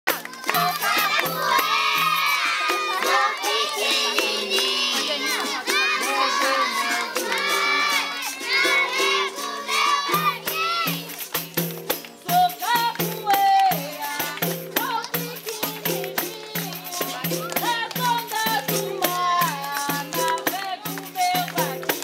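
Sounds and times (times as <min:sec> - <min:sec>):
tambourine jingles: 0:00.2 - 0:22.0
children chanting together: 0:00.3 - 0:11.1.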